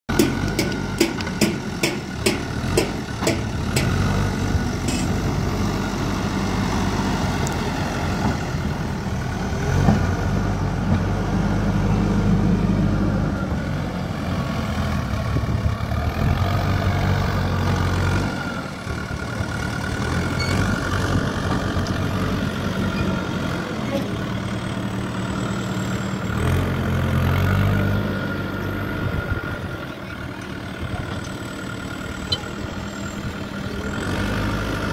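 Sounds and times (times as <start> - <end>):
diesel engine revving: 0.1 - 34.9.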